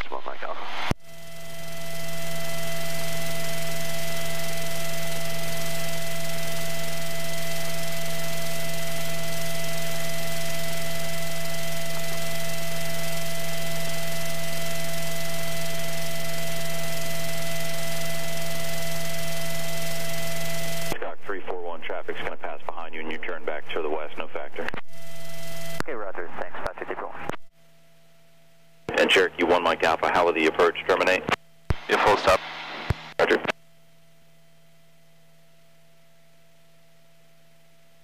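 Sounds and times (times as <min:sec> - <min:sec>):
aircraft engine and cabin drone: 0:01.0 - 0:21.0
whining tones: 0:01.1 - 0:21.0.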